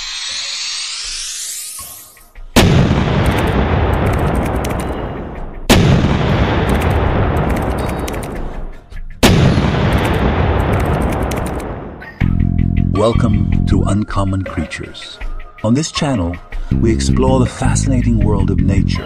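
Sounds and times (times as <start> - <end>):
cinematic impact booms with rumble: 2.6 - 7.9, 9.2 - 12.6.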